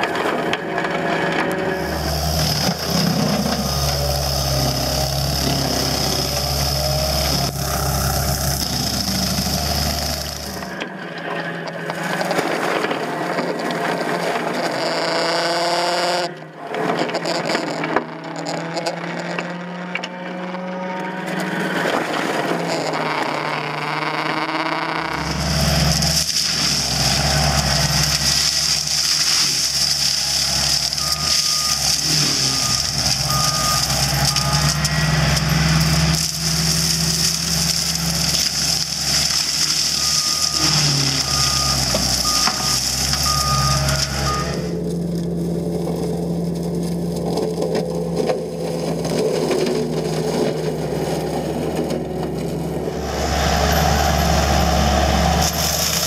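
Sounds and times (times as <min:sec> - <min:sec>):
diesel engine running hard: 0:00.0 - 0:17.0, 0:17.8 - 0:56.0
reversing alarm beeps: 0:30.9 - 0:35.9, 0:40.0 - 0:44.8.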